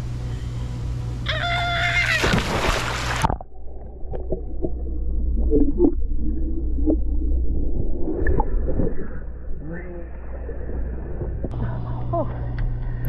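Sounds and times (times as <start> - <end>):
person splashing into pool: 2.0 - 3.4
low underwater rumble: 2.2 - 13.0
underwater bubbling and gurgling: 2.3 - 11.5.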